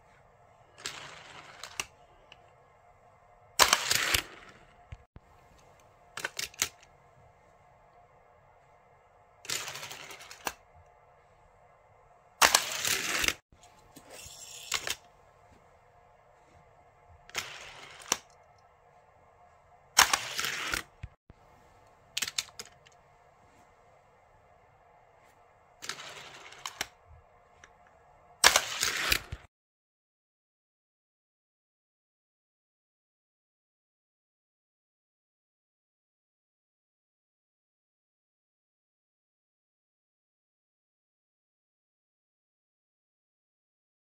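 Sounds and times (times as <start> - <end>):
toy car clattering down track: 0.8 - 1.9, 9.5 - 10.6, 14.2 - 15.0, 20.0 - 20.9, 25.8 - 26.9, 28.4 - 29.4
plastic toy clicks and rattling: 6.2 - 6.8, 22.1 - 23.0, 25.8 - 26.9
sharp clicks of launcher: 20.0 - 20.9.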